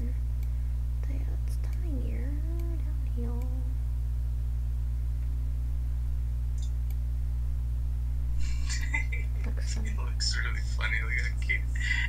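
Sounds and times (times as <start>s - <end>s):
steady low hum: 0.0s - 12.0s
person humming: 1.0s - 3.7s.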